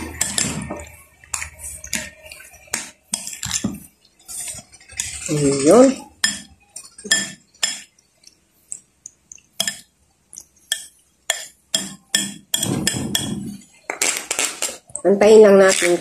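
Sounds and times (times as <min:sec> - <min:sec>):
spoon scraping and stirring salad: 0:00.0 - 0:16.0
metal spoon clinking against bowl: 0:04.3 - 0:07.9, 0:09.6 - 0:13.4.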